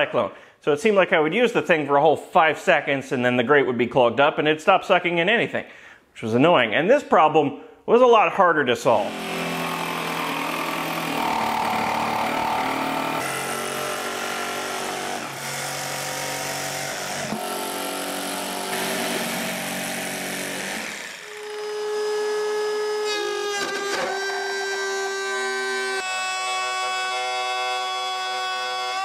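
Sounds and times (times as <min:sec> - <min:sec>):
jigsaw sawing: 0:09.0 - 0:29.0
router whining: 0:09.0 - 0:29.0.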